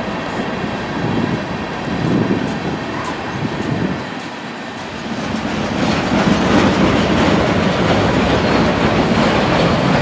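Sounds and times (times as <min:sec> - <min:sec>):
train wheels clattering over rails: 0:00.0 - 0:10.0.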